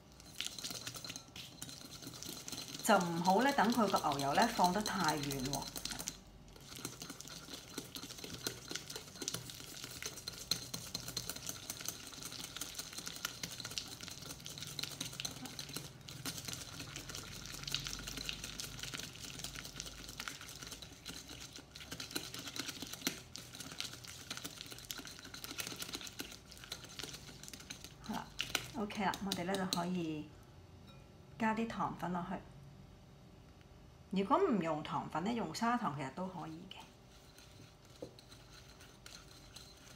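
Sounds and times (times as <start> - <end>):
whisk clicking against glass bowl: 0.2 - 30.0, 37.1 - 39.9.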